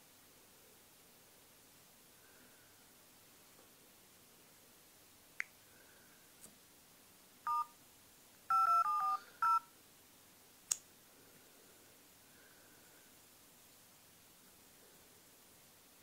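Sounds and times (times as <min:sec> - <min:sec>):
keypad touch-tone beeps: 0:07.5 - 0:07.7, 0:08.5 - 0:09.7.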